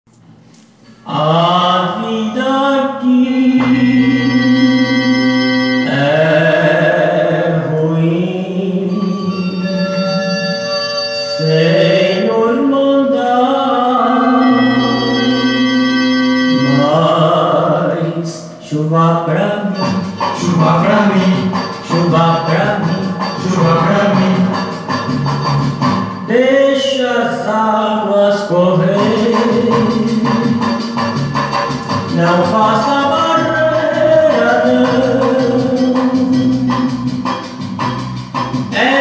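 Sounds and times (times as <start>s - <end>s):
man singing with vibrato: 0.9s - 25.1s, 26.2s - 37.5s, 38.6s - 39.0s
held accompaniment notes: 2.8s - 26.5s, 28.5s - 39.0s
vinyl groove noise: 19.8s - 26.1s, 28.9s - 38.8s.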